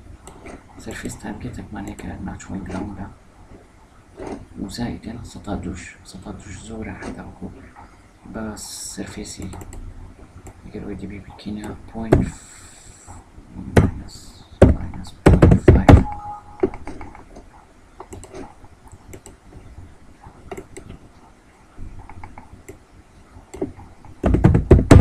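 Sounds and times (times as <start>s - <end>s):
keyboard typing: 14.7s - 17.3s, 18.0s - 19.4s, 22.0s - 22.8s, 23.5s - 25.0s.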